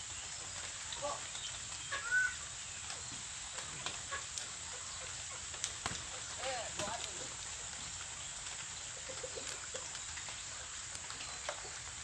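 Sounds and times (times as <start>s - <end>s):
background hiss: 0.0s - 12.0s
young peafowl chirping: 1.0s - 3.2s.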